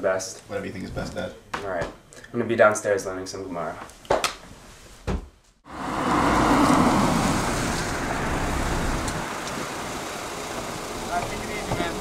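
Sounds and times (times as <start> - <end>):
car driving slowly by: 5.7 - 12.0.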